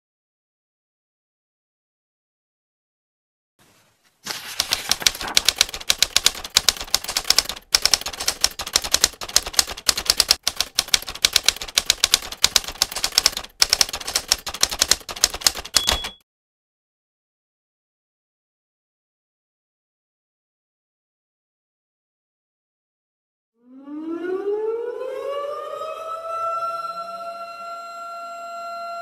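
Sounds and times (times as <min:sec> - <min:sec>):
typewriter keys striking: 0:04.6 - 0:16.2
short ringing tone: 0:15.8 - 0:16.2.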